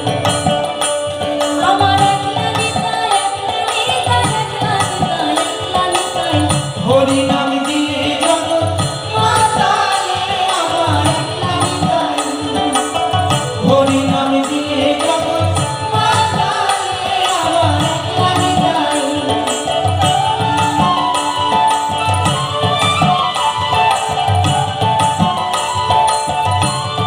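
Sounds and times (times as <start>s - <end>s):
hand drum beat: 0.0s - 27.0s
man and woman singing: 1.4s - 21.2s.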